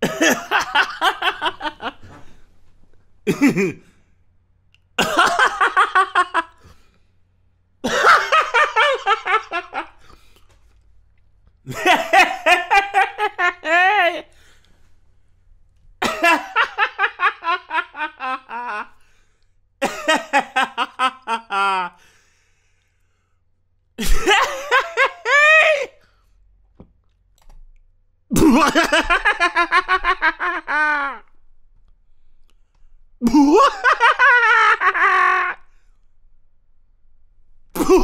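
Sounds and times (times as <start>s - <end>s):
man laughing heartily: 0.0s - 2.4s, 3.3s - 3.9s, 5.0s - 6.8s, 7.8s - 10.3s, 11.7s - 14.6s, 16.0s - 19.0s, 19.8s - 22.1s, 24.0s - 26.0s, 28.3s - 31.3s, 33.2s - 35.7s, 37.8s - 38.0s.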